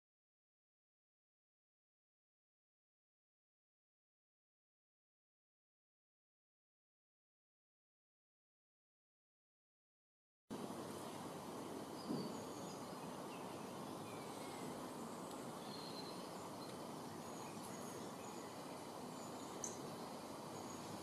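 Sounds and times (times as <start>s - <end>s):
outdoor background noise: 10.5s - 21.0s
bird chirps: 11.9s - 21.0s.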